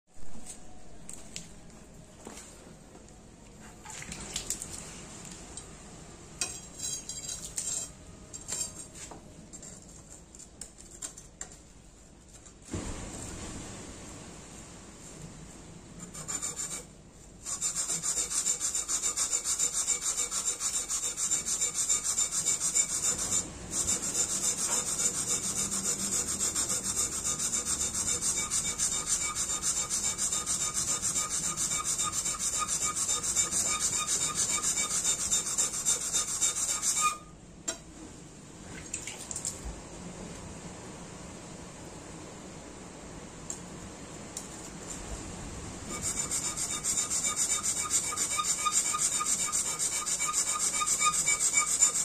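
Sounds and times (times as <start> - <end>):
blade scraping on wet whetstone: 16.0 - 37.2, 45.9 - 52.0.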